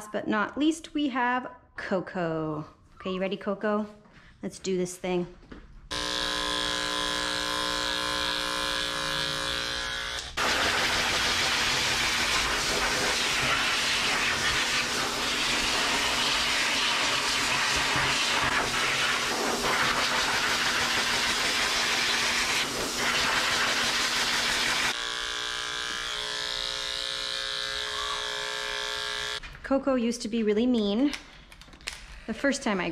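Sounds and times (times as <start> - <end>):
electric dog clippers buzzing: 5.9 - 29.4
pet dryer blowing air: 5.9 - 29.4.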